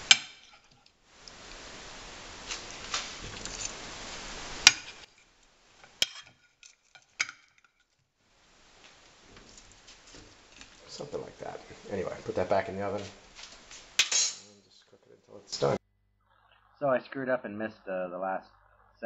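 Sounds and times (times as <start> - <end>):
steady hiss: 0.0 - 7.6, 8.2 - 15.8
metal tongs clicking on plate: 14.0 - 14.4.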